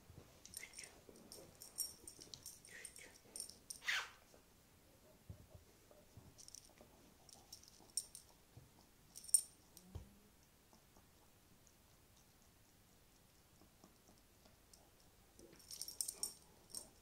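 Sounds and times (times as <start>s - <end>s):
dog collar tag clinking: 0.4s - 3.9s, 6.4s - 8.3s, 9.1s - 9.9s, 15.4s - 17.0s.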